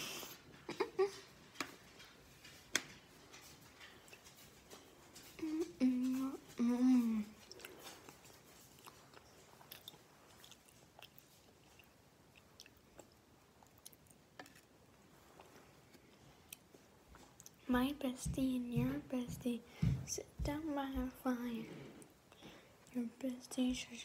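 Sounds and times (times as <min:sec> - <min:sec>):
chewing with mouth closed: 0:07.4 - 0:14.3.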